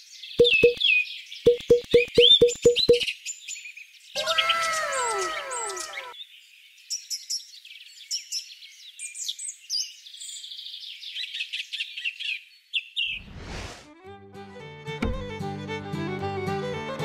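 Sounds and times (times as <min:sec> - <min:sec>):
small birds chirping: 0:00.0 - 0:13.2
whooshing sweep: 0:13.2 - 0:13.9.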